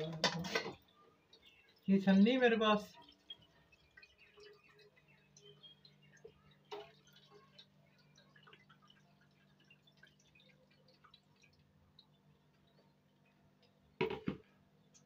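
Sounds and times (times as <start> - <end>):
thick liquid pouring through strainer: 2.8 - 13.2.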